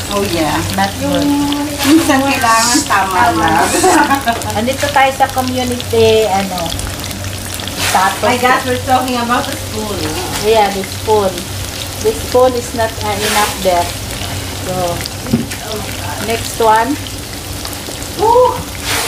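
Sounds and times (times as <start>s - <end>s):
people talking: 0.0s - 6.8s, 7.8s - 17.0s, 18.2s - 19.0s
vegetables sizzling in hot oil: 0.0s - 19.0s.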